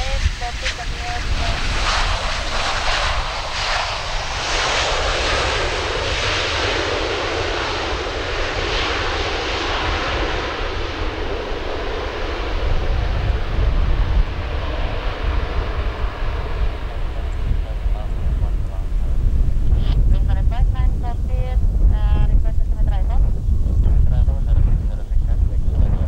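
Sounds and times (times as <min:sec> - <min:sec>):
jet engines rushing on landing: 0:00.0 - 0:26.0.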